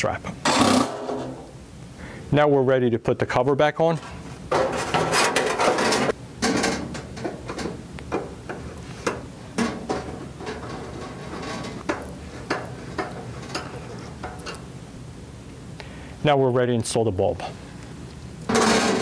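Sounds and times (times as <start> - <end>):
sheet metal cover rattling and scraping: 4.0 - 14.6, 18.5 - 19.0.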